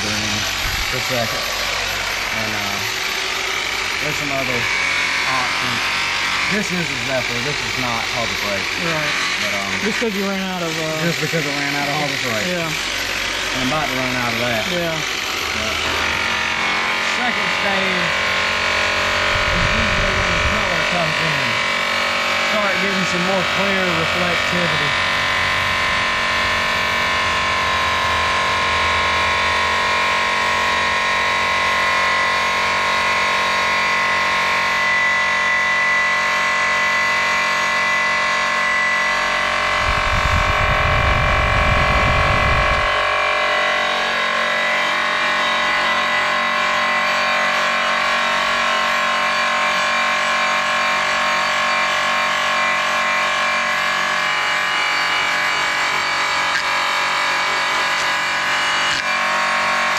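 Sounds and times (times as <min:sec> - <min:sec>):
polisher motor whine: 0:00.0 - 0:59.9
heavy low rumble: 0:19.3 - 0:20.7, 0:39.7 - 0:42.9.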